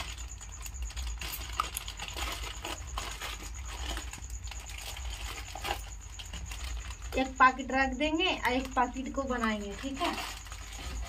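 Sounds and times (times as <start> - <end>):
plastic packet crinkling and tearing: 0.0 - 7.2, 9.6 - 11.0.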